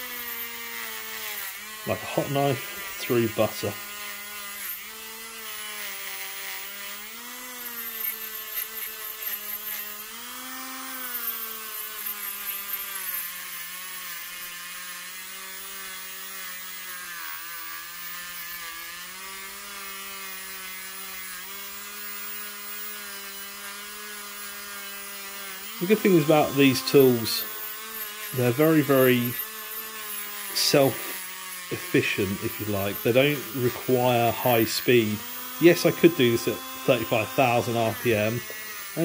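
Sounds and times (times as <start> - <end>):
rotary tool whine: 0.0 - 39.0
bit scraping on metal: 25.7 - 39.0.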